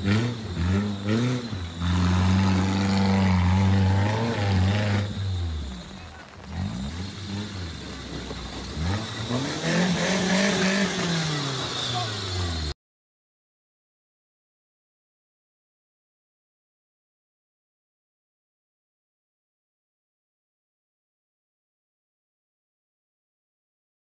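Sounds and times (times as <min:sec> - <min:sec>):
off-road vehicle engine revving: 0:00.0 - 0:12.8.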